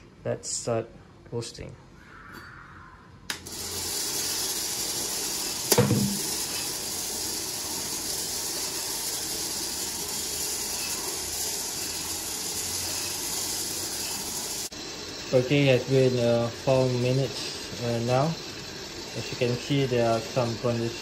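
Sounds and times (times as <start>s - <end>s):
coffee beans hissing in roaster: 3.3s - 21.0s
loud knock: 5.7s - 6.2s.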